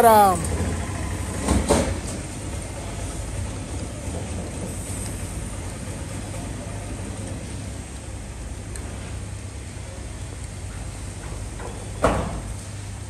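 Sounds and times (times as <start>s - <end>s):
low rumble and hiss: 0.0s - 13.0s.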